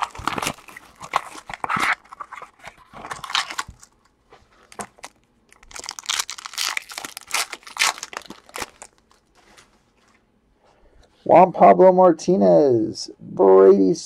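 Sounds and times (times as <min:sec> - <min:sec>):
plastic wrapper being torn open: 0:00.0 - 0:04.0, 0:04.7 - 0:09.3.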